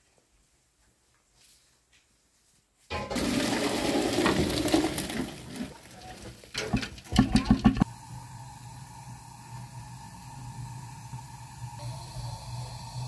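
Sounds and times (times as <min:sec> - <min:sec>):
water gushing into steel sink: 0:02.9 - 0:05.9
knocks: 0:06.6 - 0:07.8.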